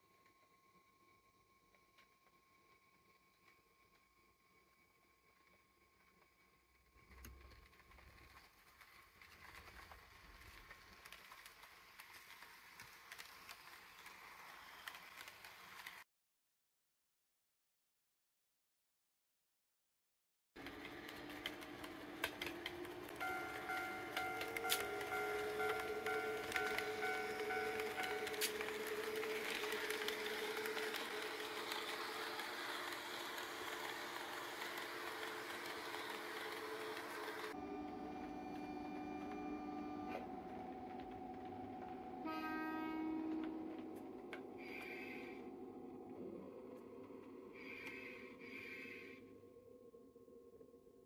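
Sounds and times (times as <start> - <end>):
model train running noise: 4.6 - 16.0, 20.6 - 45.5
wheels clicking on rails: 5.4 - 16.0, 20.6 - 45.4.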